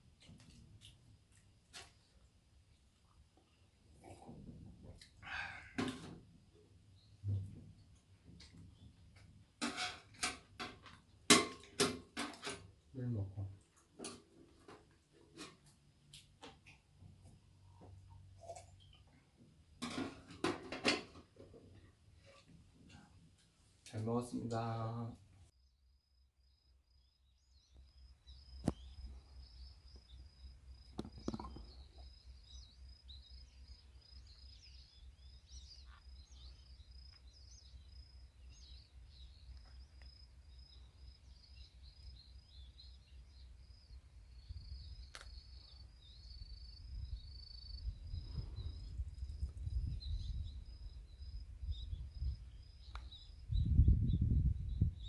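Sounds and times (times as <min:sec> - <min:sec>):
wind rumble on microphone: 0:46.8 - 0:55.0.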